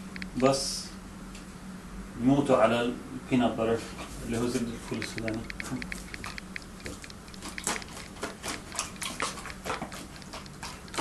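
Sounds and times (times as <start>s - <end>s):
dog licking and smacking: 4.8s - 11.0s.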